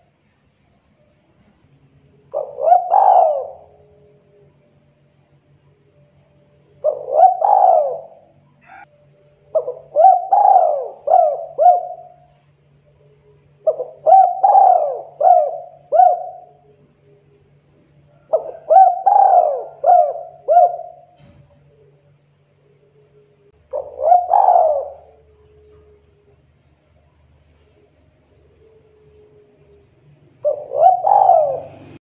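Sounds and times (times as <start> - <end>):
faint steady hum: 0.0 - 32.0
dove cooing: 2.3 - 4.2, 6.8 - 8.9, 9.5 - 12.3, 13.6 - 16.8, 18.1 - 21.8, 23.6 - 26.1, 30.4 - 32.0.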